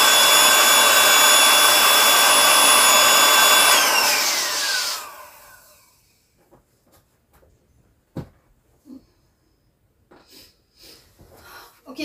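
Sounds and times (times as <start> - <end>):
electric air pump spinning down: 0.0 - 5.9.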